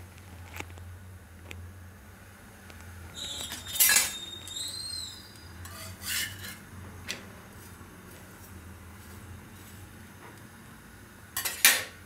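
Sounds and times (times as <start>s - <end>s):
steel spatula scraping iron griddle: 3.2s - 6.7s, 11.4s - 11.8s.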